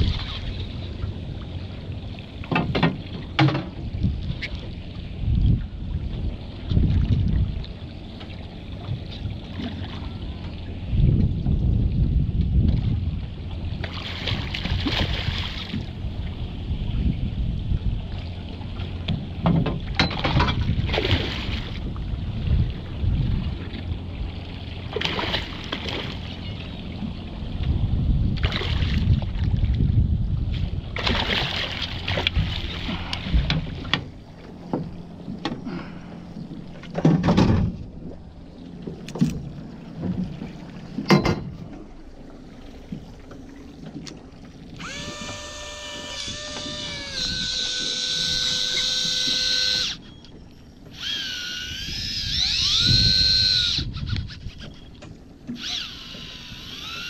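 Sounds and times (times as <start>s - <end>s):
water and wind against hull: 0.0s - 57.0s
water splashing: 13.8s - 15.9s, 24.8s - 26.4s, 31.0s - 37.2s
electric fishing reel motor whining: 44.8s - 50.2s, 50.8s - 57.0s.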